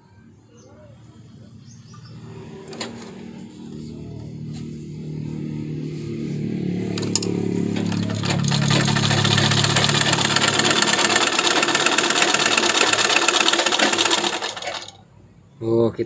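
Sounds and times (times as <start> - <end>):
sewing machine clattering: 7.0 - 15.0.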